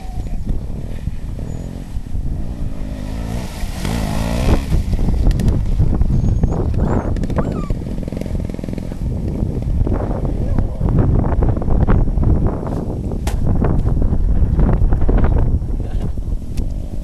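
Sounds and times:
motorcycle engine revving: 0:00.0 - 0:11.5
motorcycle riding through mud: 0:00.0 - 0:12.9.

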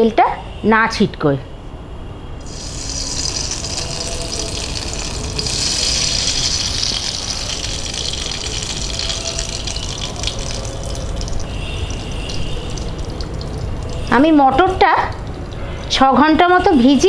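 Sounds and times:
hot oil sizzling in a pan: 0:02.4 - 0:16.0.

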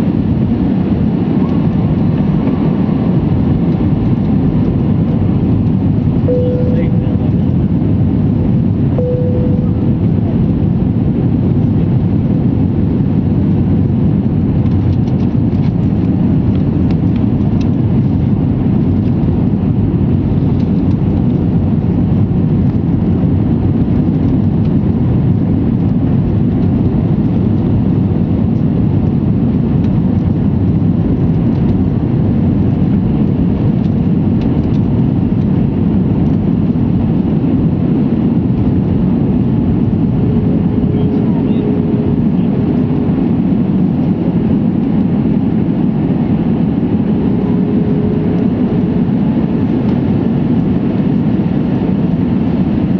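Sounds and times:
airliner cabin engine rumble: 0:00.0 - 0:52.9.

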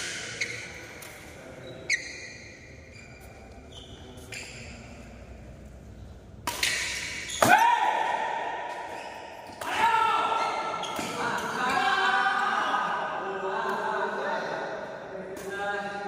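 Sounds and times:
shoes squeaking on court floor: 0:00.0 - 0:07.5, 0:08.8 - 0:09.6, 0:10.3 - 0:11.8
racket hitting shuttlecock: 0:06.4 - 0:09.8.

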